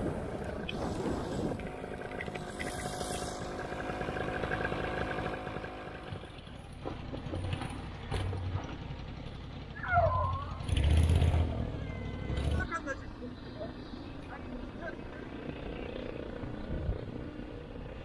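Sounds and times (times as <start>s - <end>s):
two-stroke engine running: 0.0s - 12.7s, 14.4s - 18.0s
wind buffeting microphone: 16.4s - 18.0s.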